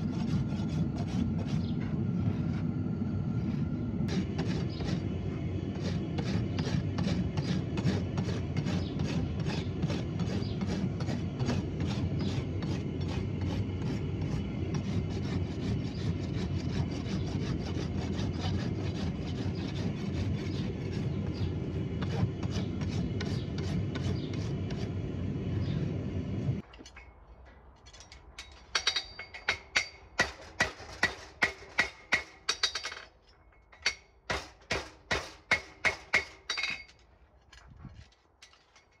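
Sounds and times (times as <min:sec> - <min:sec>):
rasp filing hoof: 0:00.0 - 0:02.6, 0:03.5 - 0:25.0.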